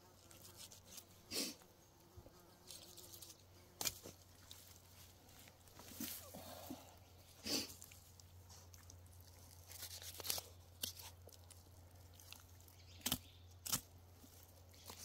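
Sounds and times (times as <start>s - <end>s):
knife slicing and hide tearing: 9.5s - 11.6s.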